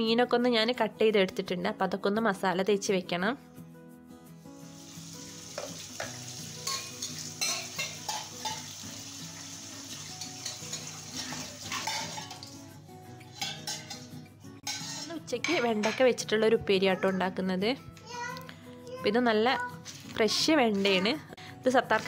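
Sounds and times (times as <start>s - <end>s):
soft background music: 0.0s - 22.0s
metal spoon clinking in cup: 6.6s - 8.6s, 11.7s - 12.5s, 13.4s - 15.1s.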